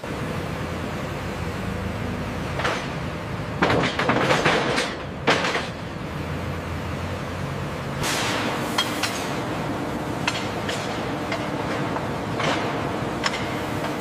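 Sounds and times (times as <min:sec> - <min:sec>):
forklift engine running: 0:00.0 - 0:14.0
metallic clanks and knocks: 0:02.6 - 0:03.0, 0:03.6 - 0:05.8, 0:10.2 - 0:14.0.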